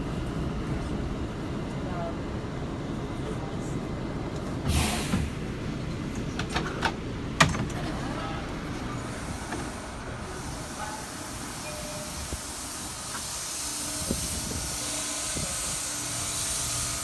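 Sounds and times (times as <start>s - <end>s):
subway train rumble: 0.0s - 17.0s
air hiss: 4.7s - 5.4s, 9.1s - 17.0s.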